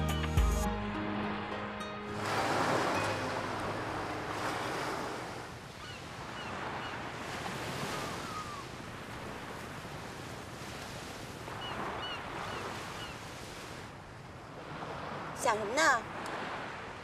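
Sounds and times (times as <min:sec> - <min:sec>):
surf washing onto beach: 0:02.1 - 0:13.9.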